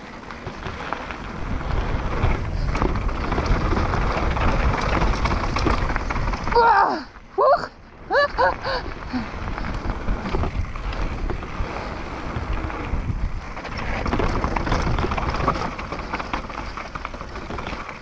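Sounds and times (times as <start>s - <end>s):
bike chain and frame rattling: 0.0s - 7.3s, 8.1s - 18.0s
wind buffeting microphone: 0.4s - 18.0s.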